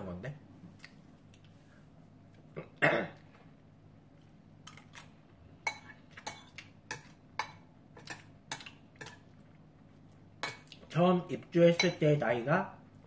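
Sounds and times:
metal spoon clinking ceramic bowl: 0:11.7 - 0:12.0.

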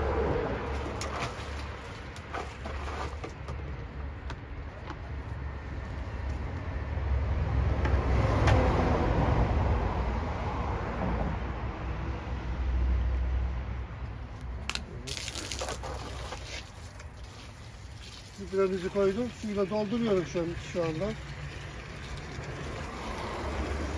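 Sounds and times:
water pouring into plastic drum: 0:15.1 - 0:23.9.

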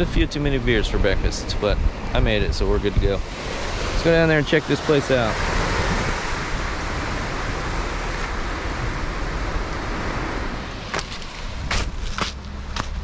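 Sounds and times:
ocean surf washing on beach: 0:01.9 - 0:11.8
short sharp scuffs: 0:10.9 - 0:13.0.

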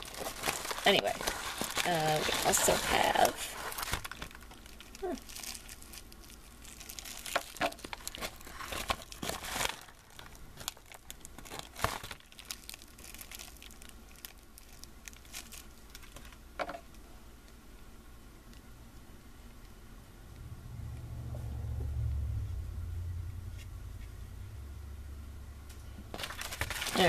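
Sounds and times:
packaging crinkling and rustling: 0:00.0 - 0:17.0, 0:26.0 - 0:27.0.

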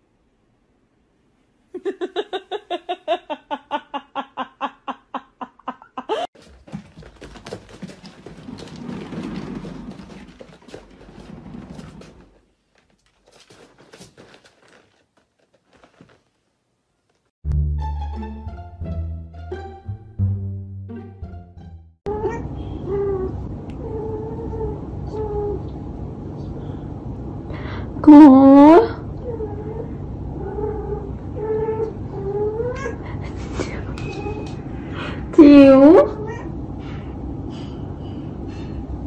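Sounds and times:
cat exercise wheel rumbling: 0:06.4 - 0:16.3.

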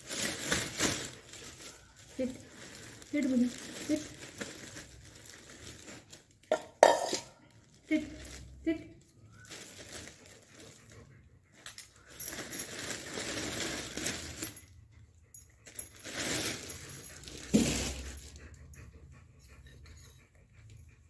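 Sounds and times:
plastic bag rustling: 0:00.0 - 0:08.6, 0:09.3 - 0:10.9, 0:12.0 - 0:14.6, 0:15.7 - 0:18.2.

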